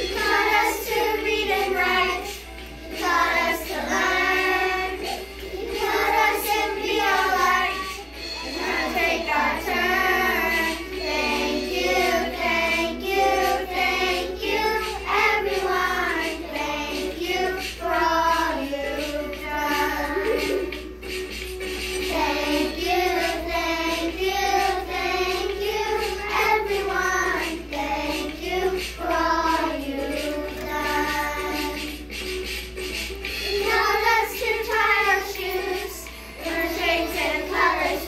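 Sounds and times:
children singing in unison: 0.0 - 21.0, 21.8 - 32.2, 33.3 - 38.0.

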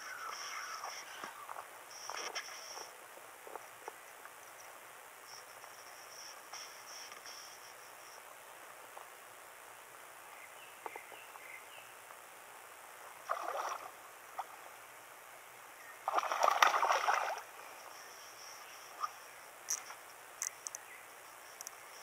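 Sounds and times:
insects chirring: 0.0 - 22.0
fish splashing at water surface: 16.1 - 17.5.

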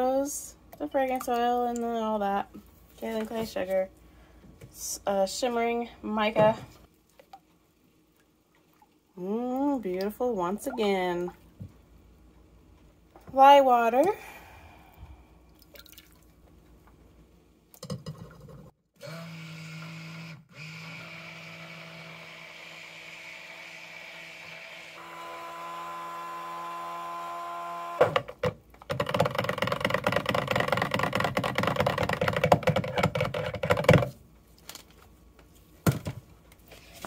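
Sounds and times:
stick blender motor hum: 19.0 - 28.4.

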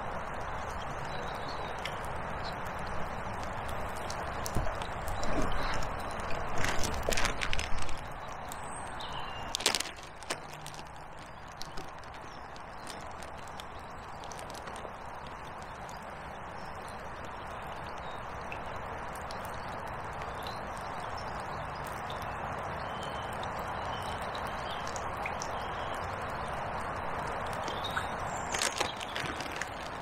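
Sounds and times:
rain falling on water and jacket: 0.0 - 30.0
clicks and rustles: 3.4 - 8.6, 9.4 - 15.5, 28.3 - 30.0.

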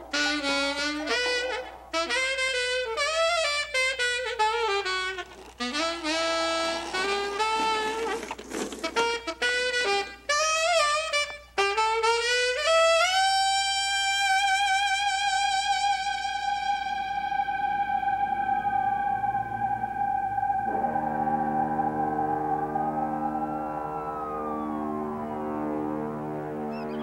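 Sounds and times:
solo saxophone playing jazz: 0.0 - 17.5.

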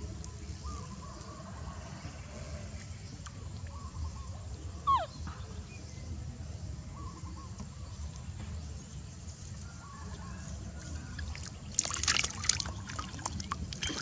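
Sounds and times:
baby monkey high call: 4.8 - 5.2.

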